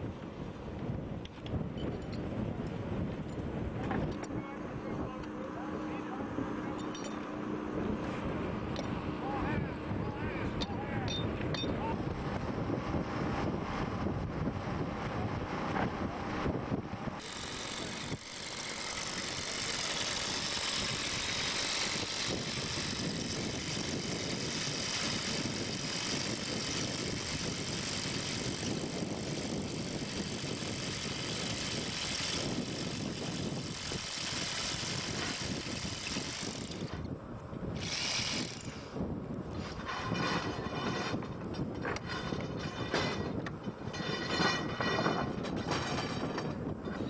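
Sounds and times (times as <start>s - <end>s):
power drill whining: 17.2s - 37.1s, 37.8s - 38.9s.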